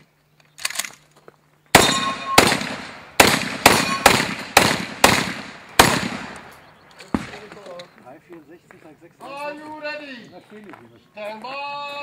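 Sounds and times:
shotgun shots: 1.7s - 7.6s.

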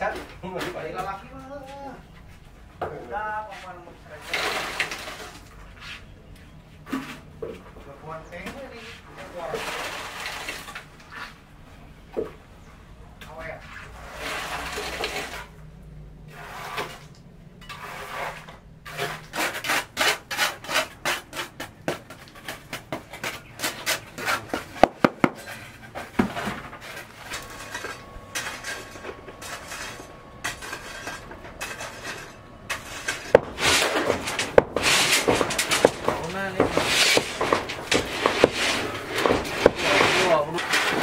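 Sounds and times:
scraping strokes on hard surface: 3.4s - 6.2s, 8.4s - 11.4s, 13.4s - 15.5s, 16.3s - 41.0s
sharp knocks: 24.5s - 25.4s, 32.8s - 40.4s.

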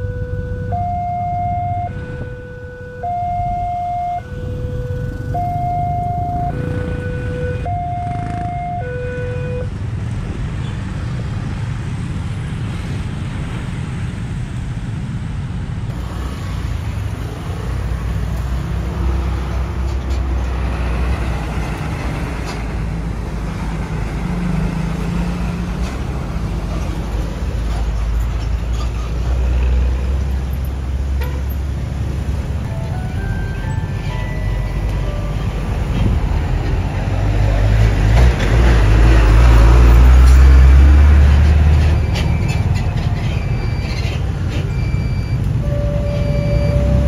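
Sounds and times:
level crossing two-tone alarm: 0.0s - 9.6s, 44.7s - 47.0s
motorbikes passing: 0.0s - 14.5s, 15.9s - 47.0s
bus engine rumble: 0.0s - 47.0s
cars passing: 0.0s - 47.0s.

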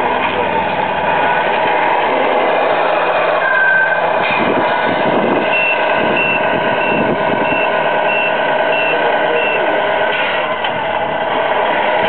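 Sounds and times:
simulated truck engine: 0.0s - 12.0s
reversing alarm beeping: 3.4s - 4.1s, 5.4s - 9.8s.

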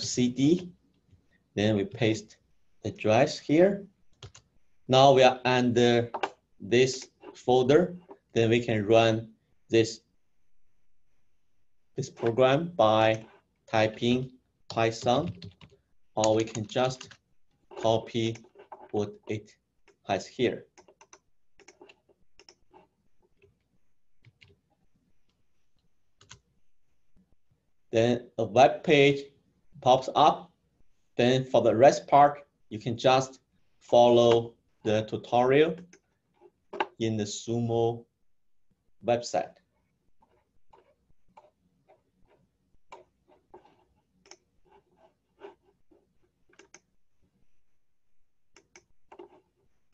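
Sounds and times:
computer mouse clicks: 20.7s - 24.6s, 42.9s - 44.5s, 46.5s - 46.9s, 48.5s - 49.4s
mouse and keyboard clicks: 46.5s - 46.9s, 48.6s - 49.4s.

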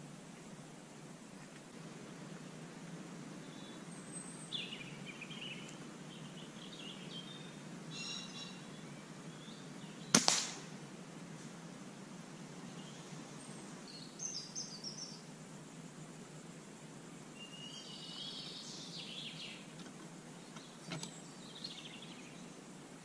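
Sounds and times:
birds chirping and singing: 3.4s - 10.2s, 12.6s - 15.3s, 17.4s - 22.6s
air rifle shot crack: 10.1s - 10.8s.

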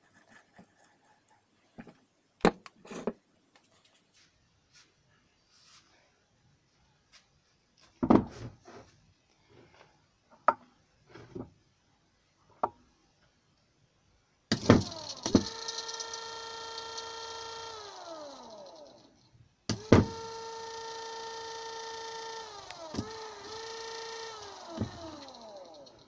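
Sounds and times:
electric motor whine: 14.5s - 26.0s.

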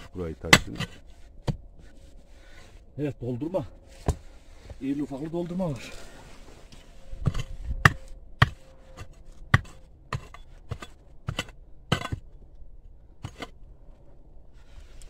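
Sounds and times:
knocks and clicks on stone: 8.4s - 12.3s.

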